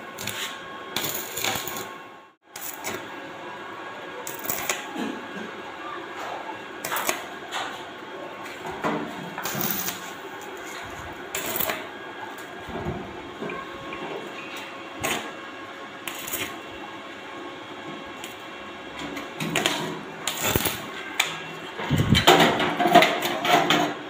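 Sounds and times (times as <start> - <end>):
welding arc crackling and sizzling: 0.0 - 3.2, 4.2 - 4.9, 6.8 - 7.4, 9.3 - 13.3, 14.2 - 23.6
sharp welding pops: 0.2 - 1.9, 4.3 - 4.8, 6.8 - 7.3, 9.4 - 10.1, 11.4 - 11.8, 15.0 - 15.3, 16.1 - 16.6, 19.5 - 21.3.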